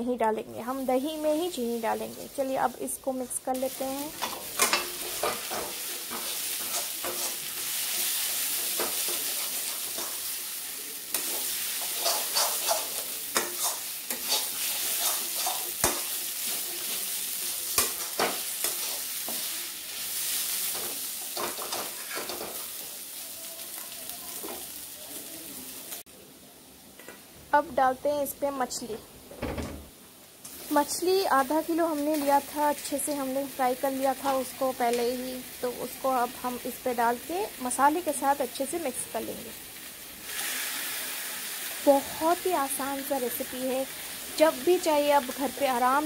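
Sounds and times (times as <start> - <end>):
food sizzling in oil: 0.0 - 26.1, 29.9 - 46.0
metal spatula scraping a pan: 4.2 - 10.4, 11.1 - 22.8.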